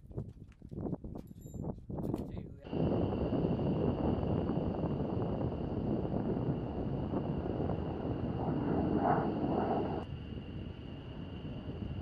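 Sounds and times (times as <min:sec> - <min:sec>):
distant jet engine roar: 0:02.6 - 0:12.0.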